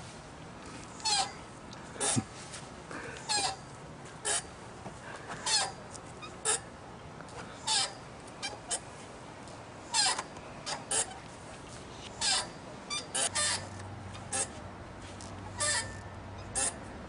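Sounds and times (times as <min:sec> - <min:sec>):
swing squeaking: 0:00.9 - 0:02.3, 0:03.2 - 0:04.6, 0:05.4 - 0:06.8, 0:07.6 - 0:09.0, 0:09.8 - 0:11.2, 0:11.8 - 0:16.9.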